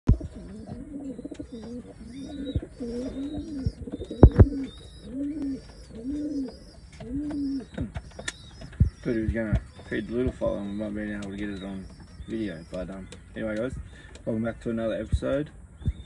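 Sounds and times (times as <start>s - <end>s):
pigeons cooing: 0.1s - 15.1s
sharp knocks: 4.2s - 4.6s.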